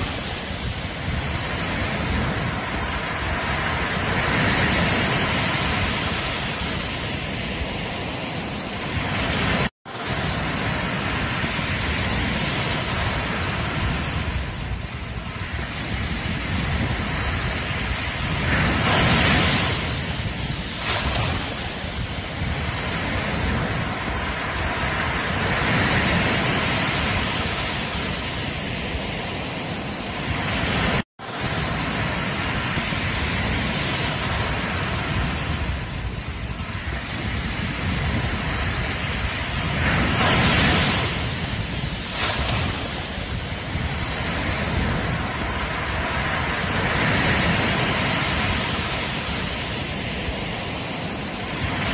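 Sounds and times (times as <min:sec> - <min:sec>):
ocean waves breaking: 0:00.0 - 0:51.9.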